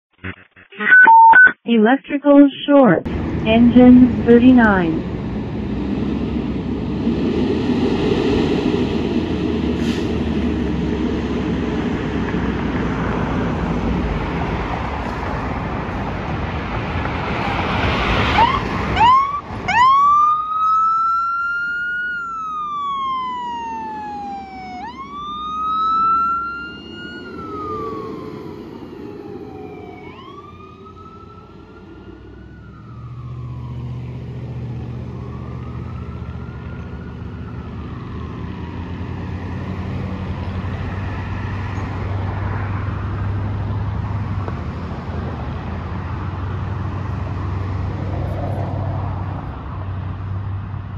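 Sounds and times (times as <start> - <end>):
fire engine and road noise: 0.2 - 50.9
siren wailing: 18.2 - 40.0.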